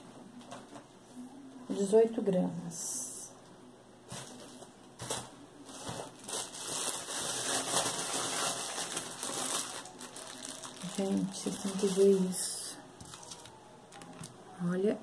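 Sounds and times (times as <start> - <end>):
plastic wrapping crinkling: 4.1 - 14.4.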